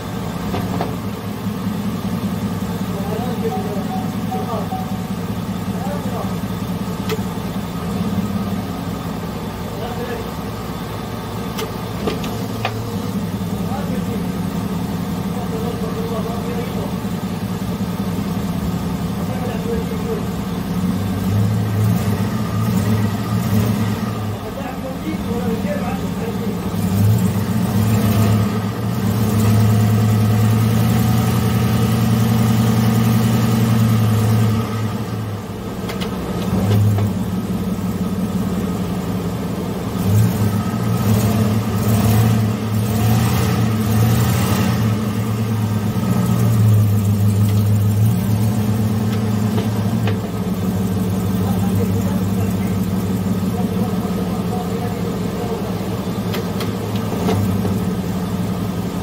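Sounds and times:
truck engine running: 0.0 - 59.0.

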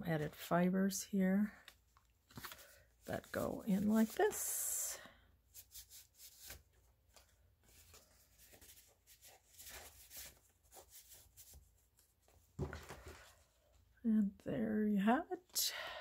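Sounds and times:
paper and card rustling: 1.5 - 4.7, 5.5 - 13.4.

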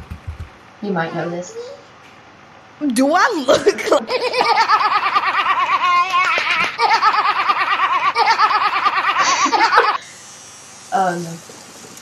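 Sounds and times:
woman laughing high-pitched: 3.5 - 10.0.

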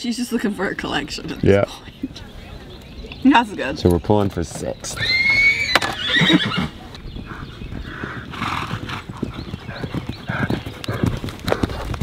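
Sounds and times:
hoofbeats on sand and gravel: 7.0 - 12.0.

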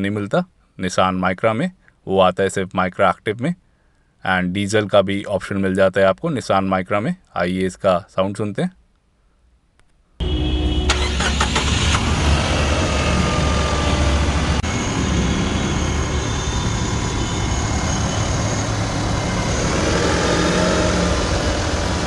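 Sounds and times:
car engine idling: 10.2 - 14.8.

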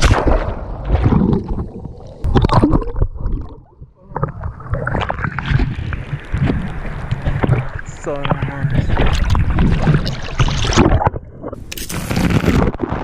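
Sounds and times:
sea water splashing: 0.0 - 13.0.

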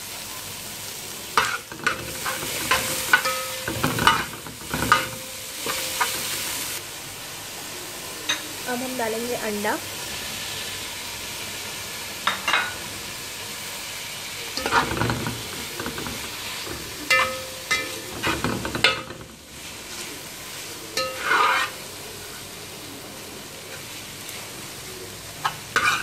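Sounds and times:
food sizzling in a pot: 0.0 - 26.0
spatula scraping a pot: 14.6 - 19.3, 21.0 - 21.8, 25.8 - 26.0.

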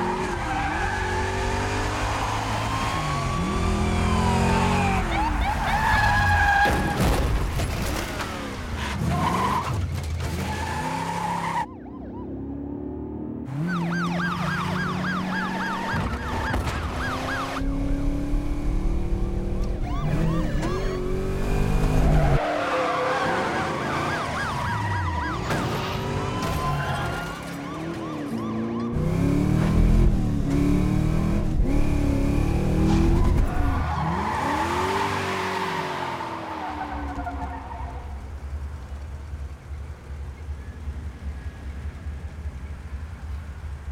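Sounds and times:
police sirens wailing: 0.0 - 6.6, 10.6 - 12.8, 13.5 - 30.2
tires skidding: 0.0 - 7.4, 20.0 - 28.0, 32.8 - 39.1
car engine revving: 29.0 - 37.1.

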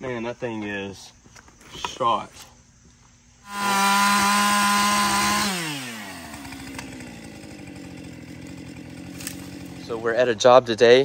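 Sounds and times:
chainsaw running: 3.4 - 11.0.

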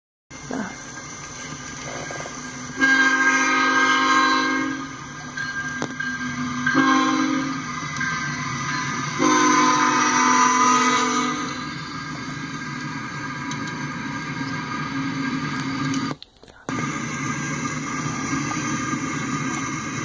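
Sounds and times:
train rumbling past: 0.3 - 20.0
locomotive horn blasts: 2.8 - 5.0, 6.6 - 7.7, 9.2 - 11.6.

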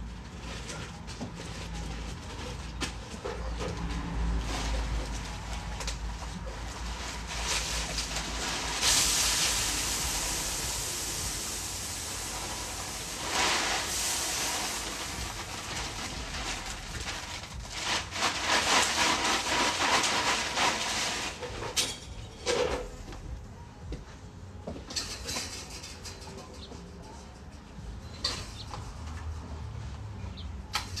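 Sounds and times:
wood chips pouring: 3.9 - 21.8.

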